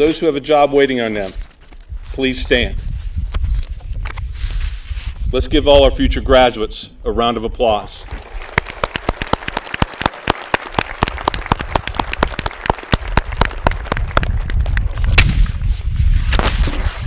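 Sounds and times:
audience applauding: 8.1s - 15.0s.

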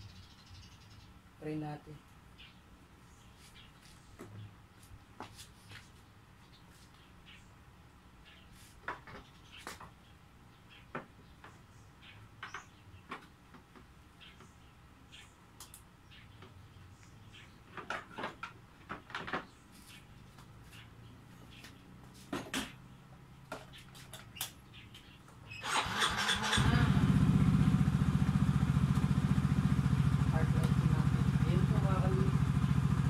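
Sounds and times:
motorcycle engine starting: 25.5s - 33.0s.

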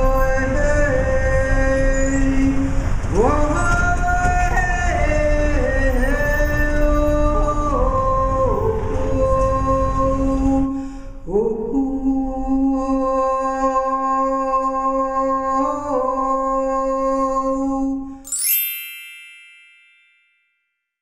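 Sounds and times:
bright chime ringing: 18.3s - 20.7s.

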